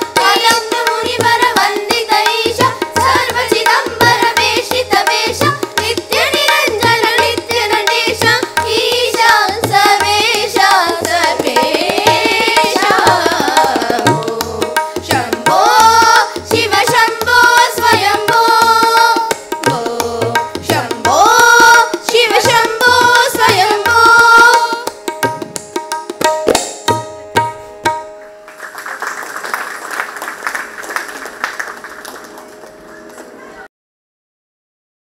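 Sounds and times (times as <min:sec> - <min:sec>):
girls singing in unison: 0:00.0 - 0:24.9
hand drum: 0:00.0 - 0:28.5
applause: 0:28.4 - 0:33.5.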